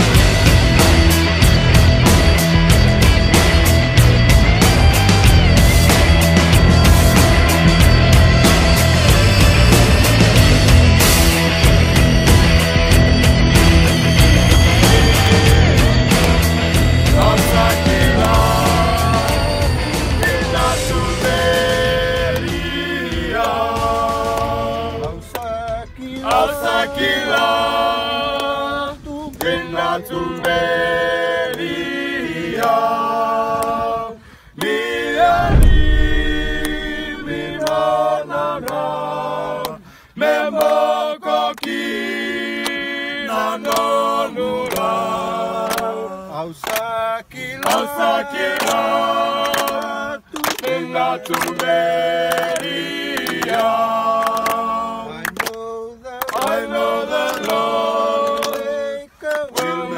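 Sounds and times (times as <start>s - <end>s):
men singing a cappella: 5.3s - 35.5s, 36.3s - 59.9s
deep thump: 35.2s - 37.7s.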